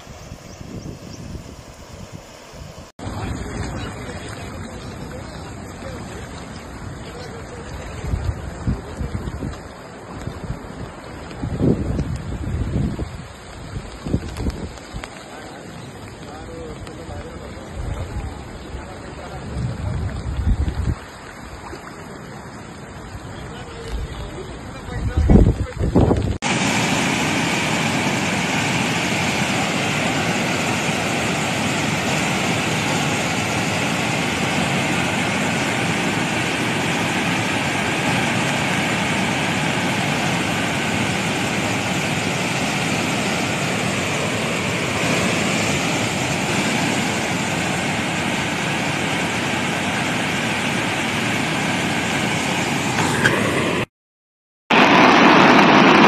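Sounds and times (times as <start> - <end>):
waterfall rushing: 26.4 - 53.9.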